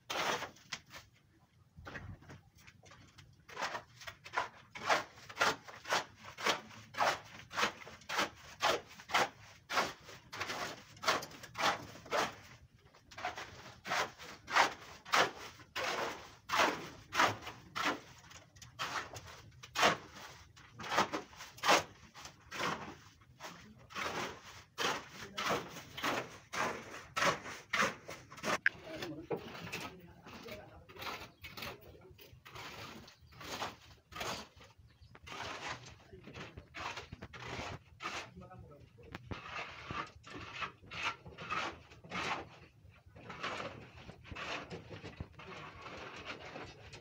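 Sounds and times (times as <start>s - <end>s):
hand tool scraping concrete floor: 0.0s - 1.1s, 3.5s - 47.0s.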